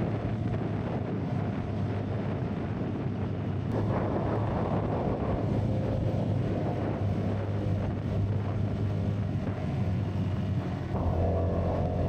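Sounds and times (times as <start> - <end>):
wind rush on microphone: 0.0 - 12.0
motorcycle engine running: 3.7 - 12.0.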